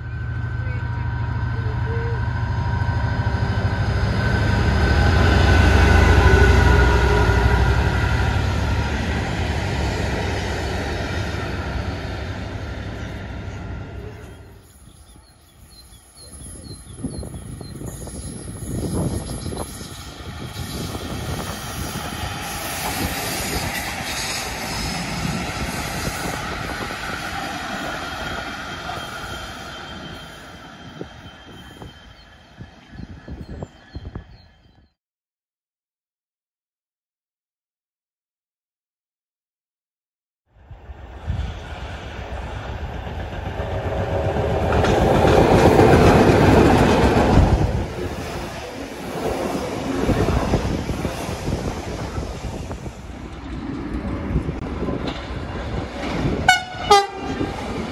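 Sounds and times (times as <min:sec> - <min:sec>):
diesel locomotive engine running: 0:00.0 - 0:14.6
train wheels rolling on rails: 0:00.0 - 0:34.5, 0:41.0 - 0:57.9
diesel locomotive engine: 0:00.0 - 0:34.9, 0:40.6 - 0:57.9
wheels clattering on rails: 0:43.1 - 0:52.5.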